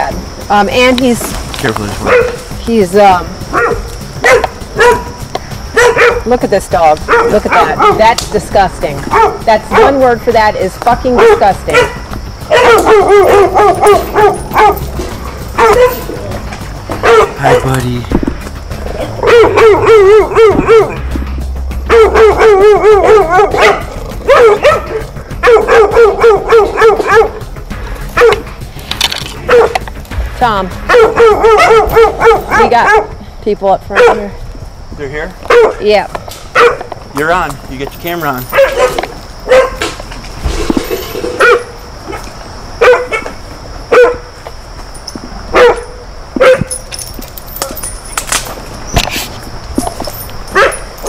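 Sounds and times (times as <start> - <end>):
dog barking in yelping runs: 2.0 - 2.5, 3.5 - 6.3, 7.0 - 8.1, 9.1 - 10.1, 11.1 - 14.9, 15.5 - 16.1, 17.0 - 17.7, 19.2 - 21.1, 21.8 - 27.4, 28.2 - 28.5, 29.5 - 29.8, 30.9 - 33.1, 33.9 - 34.3, 35.5 - 35.8, 36.5 - 36.9, 38.4 - 39.8, 41.4 - 42.2, 42.8 - 44.3, 45.5 - 46.8, 50.5 - 50.9.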